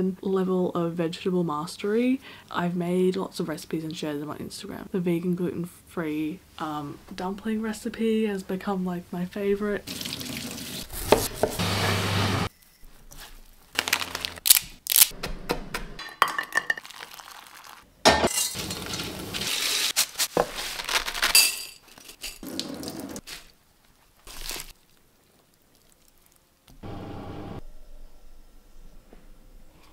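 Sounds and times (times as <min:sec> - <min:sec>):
metal and glass clinking: 0:21.3 - 0:22.4.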